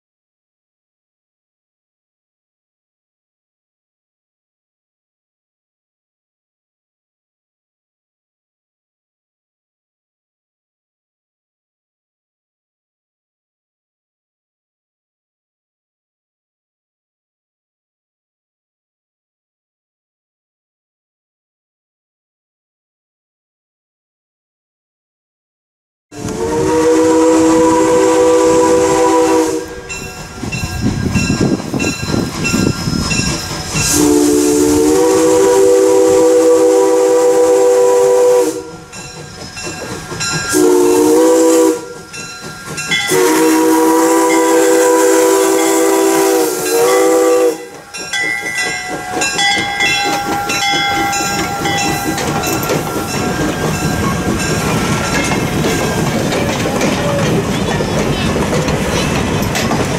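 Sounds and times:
steam locomotive chord whistle: 26.1 - 30.7, 33.7 - 57.4
train rumbling past: 26.1 - 59.9.

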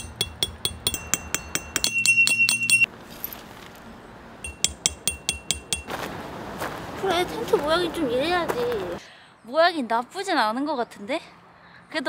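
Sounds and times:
plinking bell-like metallic clicks: 0.0 - 2.9, 4.4 - 5.9.

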